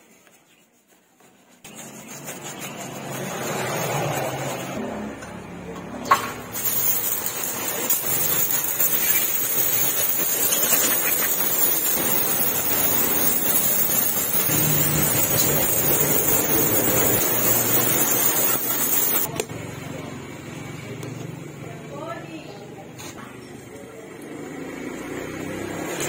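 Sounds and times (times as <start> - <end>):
pressure washer spraying metal: 6.5 - 19.3.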